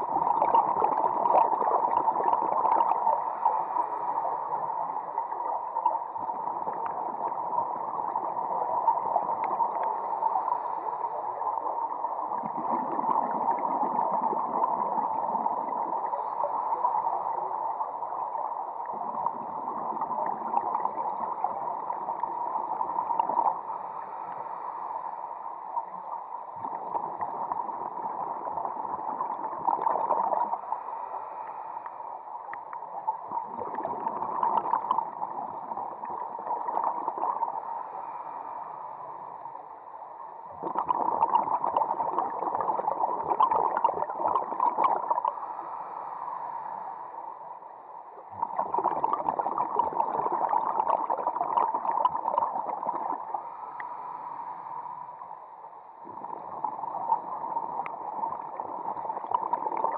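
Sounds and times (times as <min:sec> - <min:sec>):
bubbling of exhaled air: 0:00.0 - 0:04.5, 0:12.2 - 0:17.1, 0:26.6 - 0:30.7, 0:33.2 - 0:37.7, 0:40.5 - 0:45.8, 0:48.3 - 0:54.0, 0:56.0 - 0:59.9
muffled underwater noise: 0:00.0 - 0:59.9.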